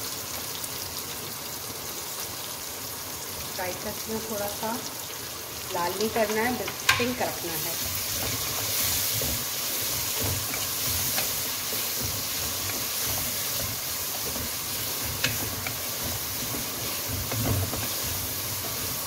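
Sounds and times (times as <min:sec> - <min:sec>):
onions sizzling in hot oil: 0:00.0 - 0:19.0.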